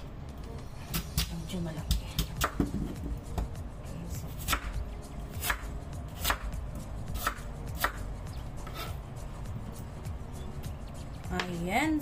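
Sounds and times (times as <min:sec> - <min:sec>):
knife slicing carrot on board: 0:04.3 - 0:08.0, 0:08.6 - 0:09.0.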